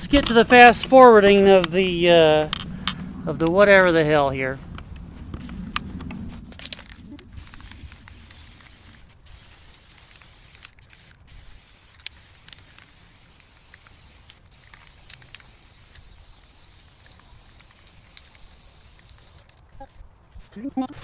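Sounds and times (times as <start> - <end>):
aerosol spray paint hissing: 6.8 - 19.6.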